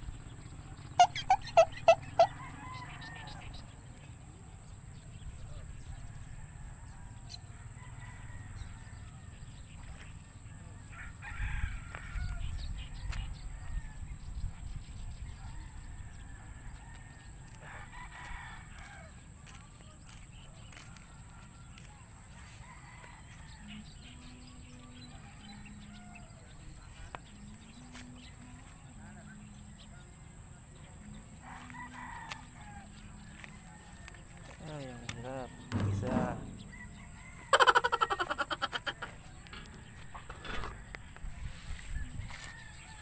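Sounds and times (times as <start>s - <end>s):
rooster crowing: 1.0s - 3.7s, 5.9s - 9.4s, 10.9s - 14.0s, 31.5s - 34.6s, 35.3s - 43.0s
low hum: 35.5s - 38.4s
low rumble: 35.6s - 37.7s.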